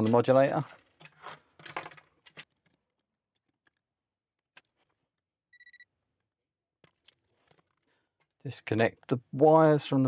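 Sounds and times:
short electronic beep: 0:05.6 - 0:05.9.

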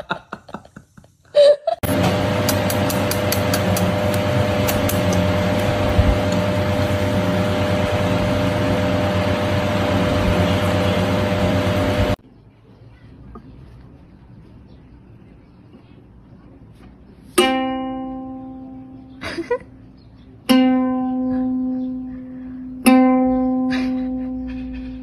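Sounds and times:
loud machine hum: 0:01.8 - 0:12.2.

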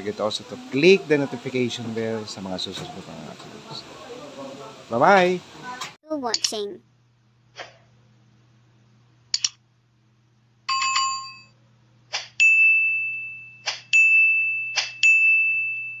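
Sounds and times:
short clicks: 0:09.3 - 0:09.6
bright bell ding: 0:12.4 - 0:16.0
multi-tone chime: 0:12.4 - 0:16.0.

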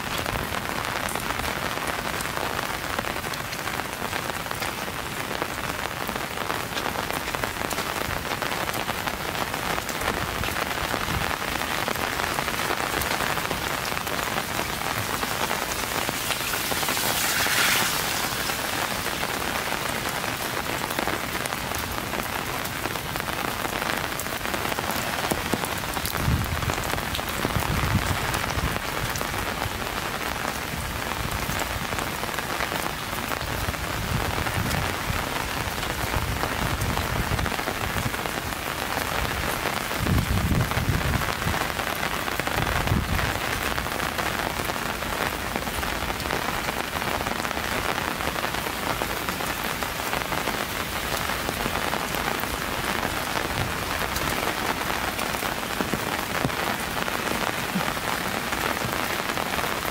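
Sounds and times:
rain falling: 0:00.0 - 0:59.9
rushing hiss: 0:15.3 - 0:19.8.

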